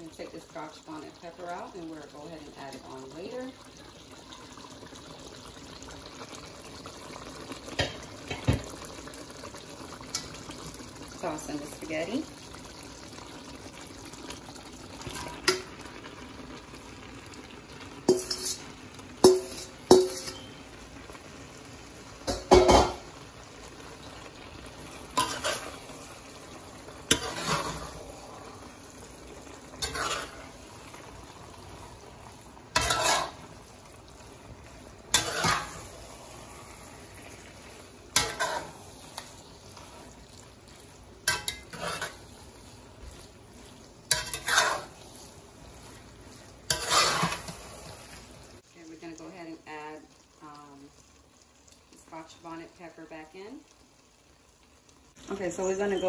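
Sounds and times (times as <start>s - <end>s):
ladle clinking against metal pot: 19.2s - 20.5s
swishing scrape of noodles: 27.2s - 28.1s, 29.8s - 30.5s, 46.7s - 47.6s.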